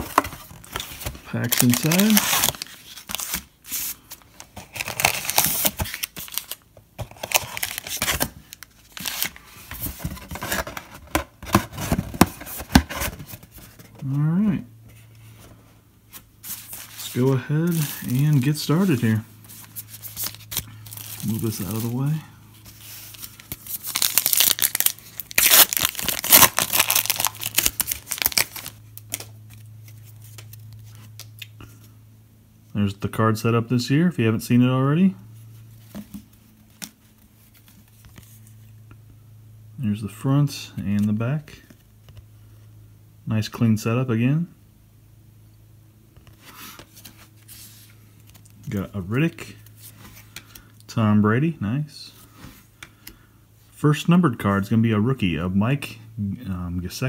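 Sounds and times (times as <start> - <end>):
wrapper tearing and crinkling: 0.0 - 3.4, 4.6 - 8.3, 23.2 - 30.5
card packs rustling and crinkling: 0.0 - 14.2, 16.1 - 31.5
low steady hum: 0.0 - 57.0.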